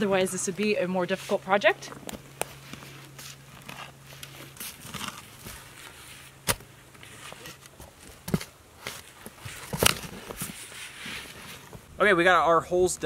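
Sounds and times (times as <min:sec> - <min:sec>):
shovel strikes: 0:06.4 - 0:06.7.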